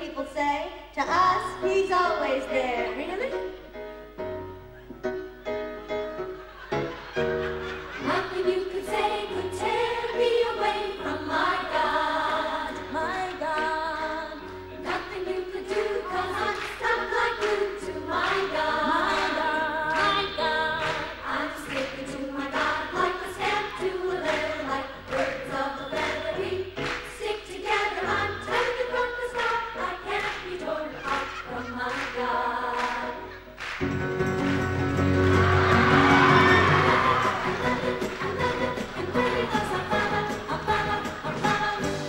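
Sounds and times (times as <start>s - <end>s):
voices singing in harmony: 7.8s - 33.5s, 35.4s - 42.0s.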